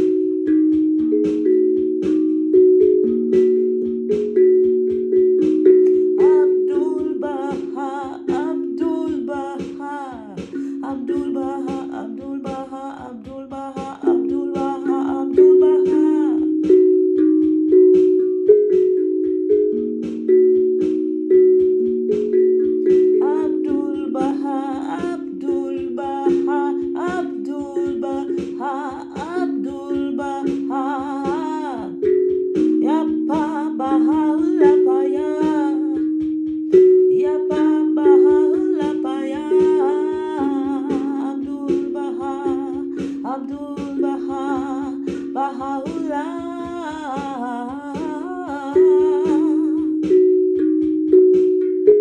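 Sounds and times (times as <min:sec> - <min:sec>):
steel tongue drum notes: 0:00.0 - 0:52.0
woman singing wordlessly: 0:05.5 - 0:16.9, 0:22.8 - 0:36.2, 0:36.9 - 0:50.2.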